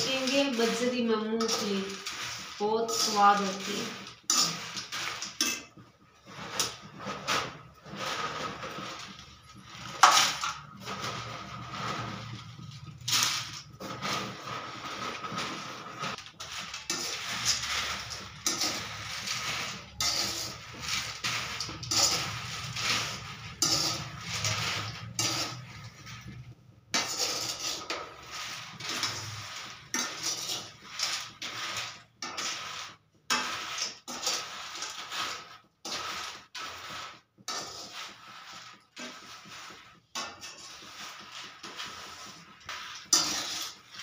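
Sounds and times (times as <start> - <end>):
metal spatula scraping in sand: 0.0 - 5.6, 6.3 - 44.0.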